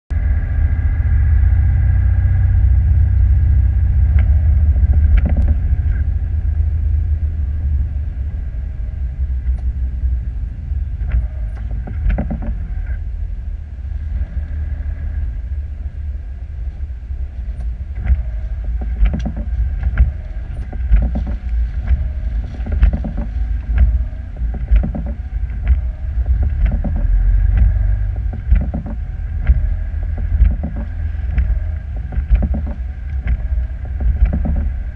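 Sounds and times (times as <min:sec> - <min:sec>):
engine road and wind rumble: 0:00.1 - 0:34.9
sharp knocks and rattles: 0:03.9 - 0:06.0, 0:11.0 - 0:12.8, 0:17.6 - 0:34.9.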